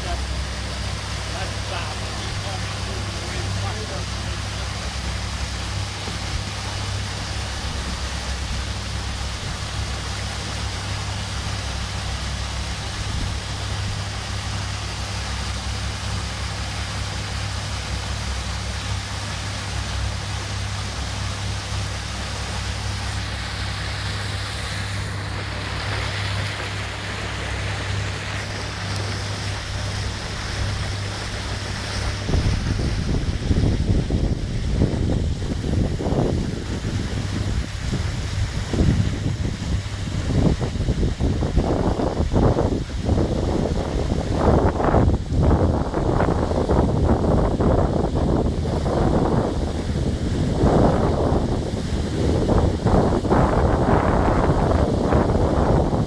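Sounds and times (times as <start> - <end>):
motorboat engine drone: 0.0 - 56.0
wind and water rushing: 0.0 - 56.0
wind buffeting microphone: 22.8 - 56.0.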